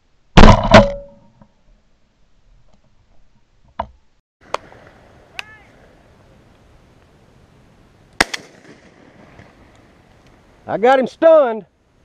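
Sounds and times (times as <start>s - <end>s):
shotgun shots: 8.2s - 9.3s.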